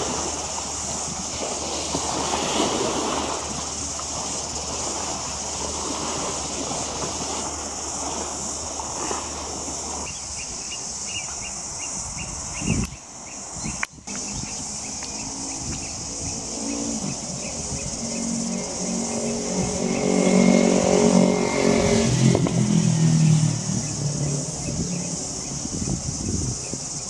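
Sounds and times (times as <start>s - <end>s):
vehicle engine passing by: 14.2s - 26.2s.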